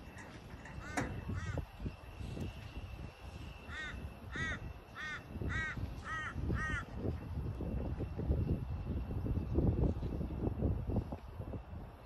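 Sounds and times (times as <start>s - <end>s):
crow cawing: 0.8s - 1.6s, 3.7s - 6.9s.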